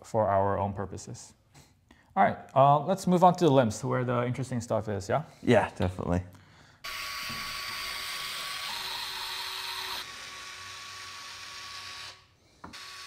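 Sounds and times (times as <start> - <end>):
electric screwdriver whirring: 6.8 - 13.0.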